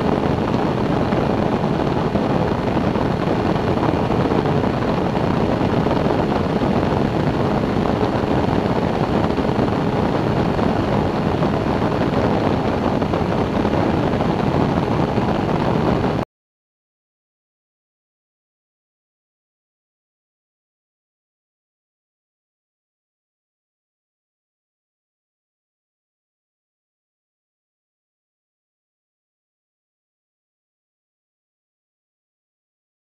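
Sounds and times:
engine and propeller drone: 0.0s - 16.2s
wind rushing over microphone: 0.0s - 16.2s.

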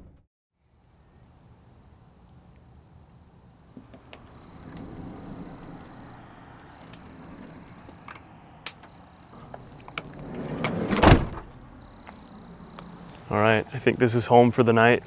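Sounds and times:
sliding van door rolling: 3.8s - 8.3s, 9.3s - 11.7s
van door slamming: 9.4s - 11.6s.

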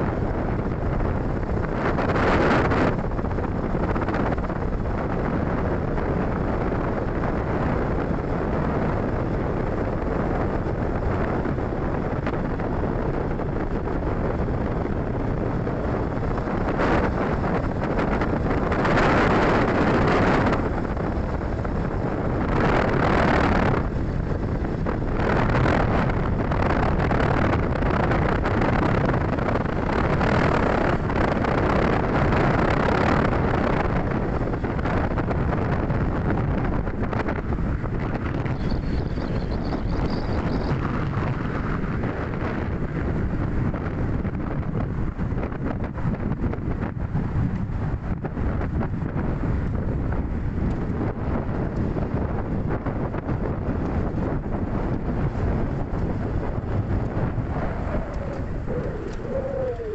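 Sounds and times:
wind rushing over microphone: 0.0s - 59.9s.

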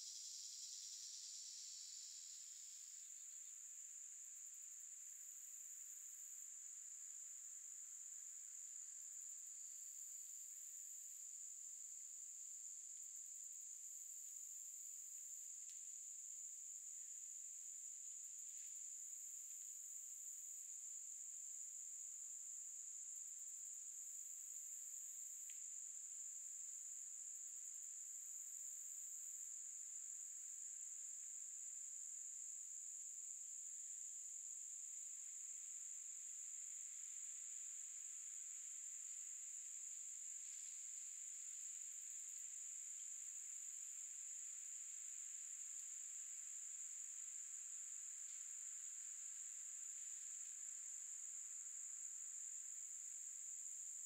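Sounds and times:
higher insect call bursts: 0.0s - 3.4s.

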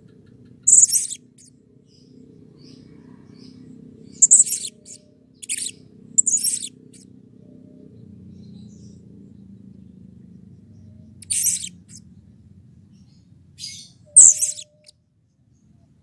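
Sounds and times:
faint low background rumble: 0.0s - 16.0s
parrot giving shrill high calls: 11.2s - 11.8s, 14.1s - 14.9s.

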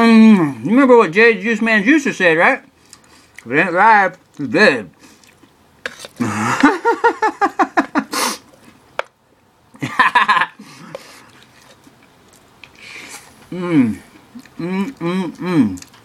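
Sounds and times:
man making vocal noises: 6.2s - 6.7s, 13.5s - 16.0s
short sharp hiss: 8.1s - 8.5s.

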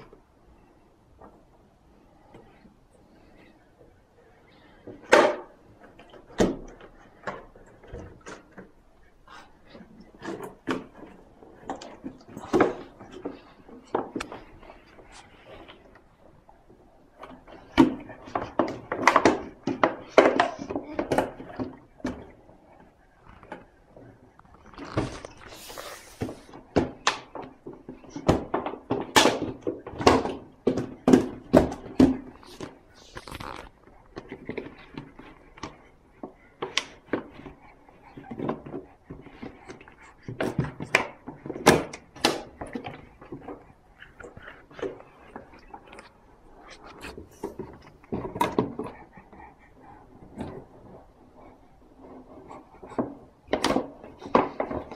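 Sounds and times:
plastic bottle knocking and crackling: 26.2s - 37.5s.

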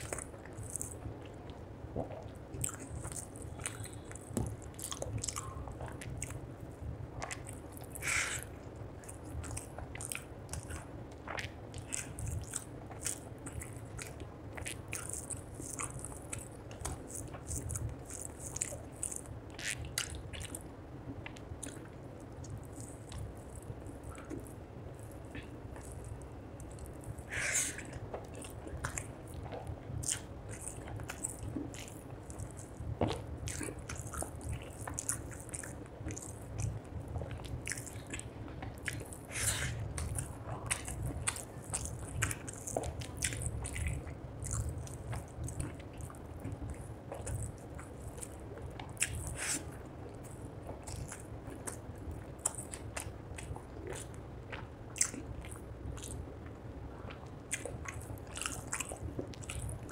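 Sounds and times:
wet mouth clicks: 0.0s - 6.4s, 7.2s - 56.5s
chewing and lip smacking: 0.0s - 59.9s.

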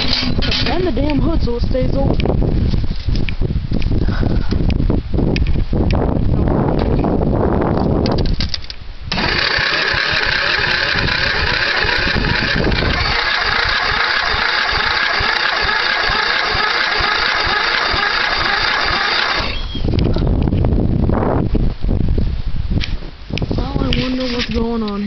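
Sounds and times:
mower engine cranking by starter: 9.1s - 19.8s.

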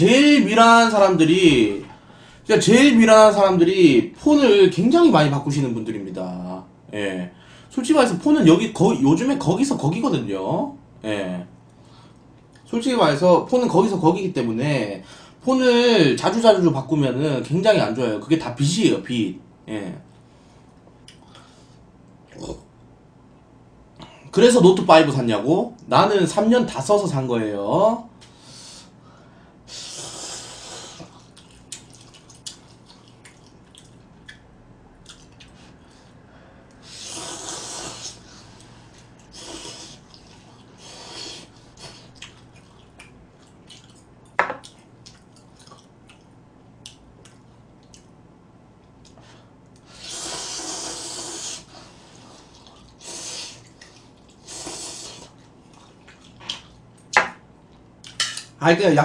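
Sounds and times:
noodles being slurped: 36.8s - 43.0s, 49.8s - 56.8s.

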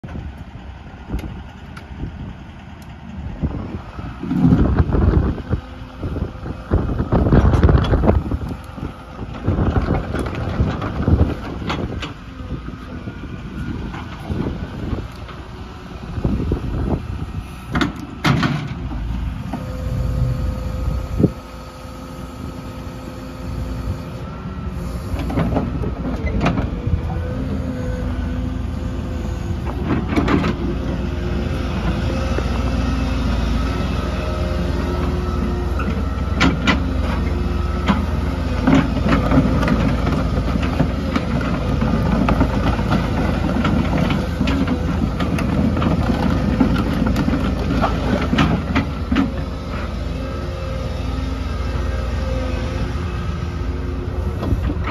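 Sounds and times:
excavator engine running: 0.0s - 54.9s
hydraulic whine: 16.2s - 54.9s.

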